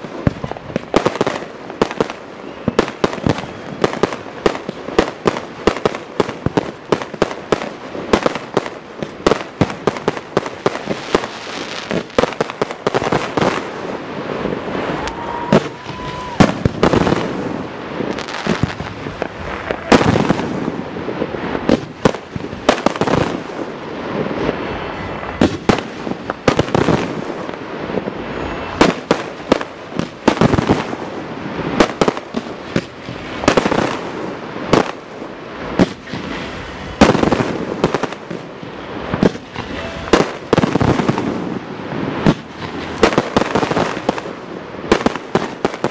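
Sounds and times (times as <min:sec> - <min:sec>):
firework crackling: 0:00.0 - 0:45.9
firework whistle: 0:00.3 - 0:04.8, 0:12.9 - 0:22.0, 0:24.2 - 0:32.1, 0:35.6 - 0:45.9.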